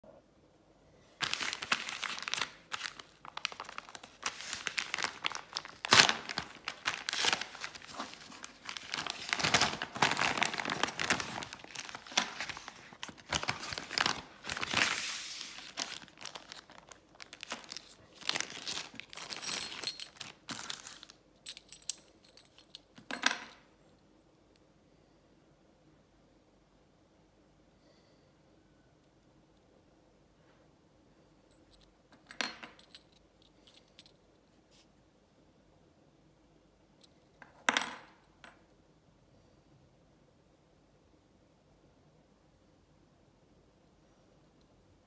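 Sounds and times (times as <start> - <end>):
paper envelope tearing and crinkling: 1.2 - 19.4
plastic bag rustling: 1.2 - 21.2.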